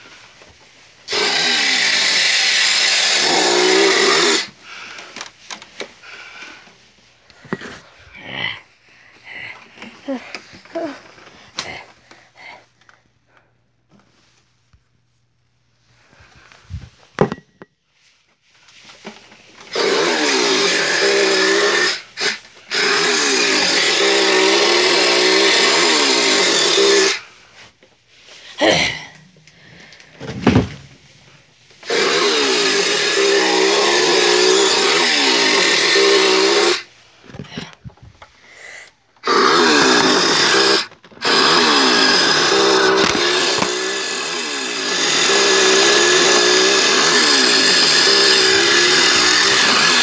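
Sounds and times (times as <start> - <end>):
chainsaw-like power tool motor: 1.1 - 5.3, 19.6 - 27.3, 31.8 - 37.6, 39.2 - 50.0
knocks and handling noises: 6.6 - 7.9, 16.4 - 17.8.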